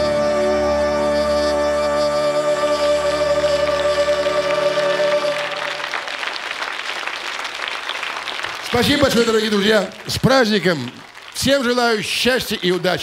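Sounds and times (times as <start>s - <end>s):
audience applause: 3.6s - 13.0s.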